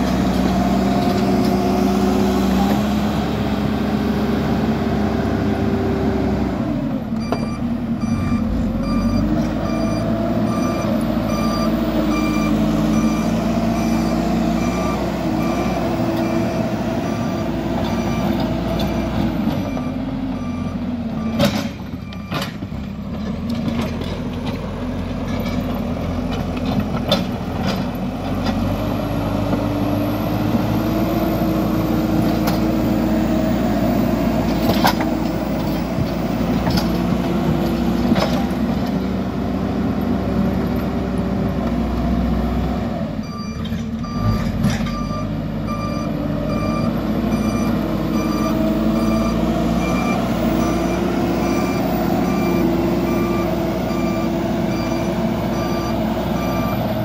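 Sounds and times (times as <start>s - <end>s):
diesel engine revving: 0.0s - 57.0s
reversing alarm beeping: 7.2s - 22.4s, 43.2s - 57.0s.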